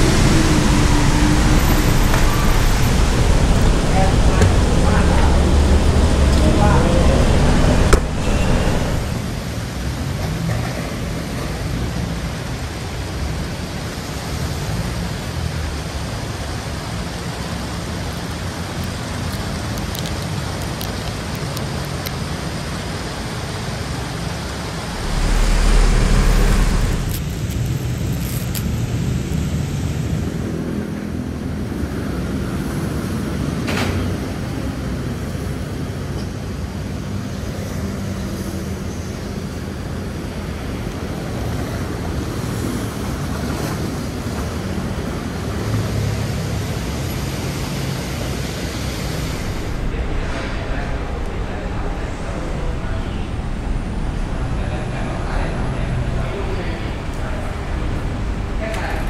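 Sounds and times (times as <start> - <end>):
low rumble: 0.0 - 9.7, 24.4 - 29.0, 48.6 - 59.0
traffic on wet roads: 0.0 - 59.0.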